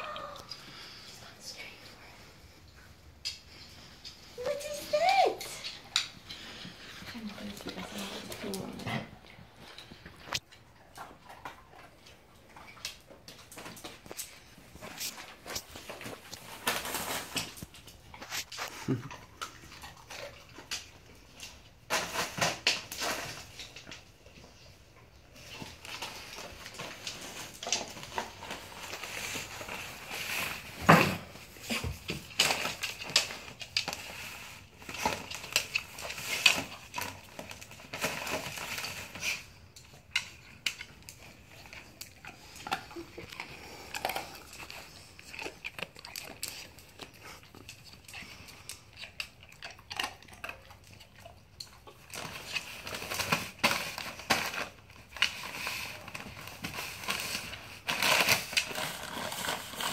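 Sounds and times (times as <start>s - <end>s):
wrapping paper crinkling: 13.4s - 19.0s, 25.4s - 49.4s, 51.9s - 59.9s.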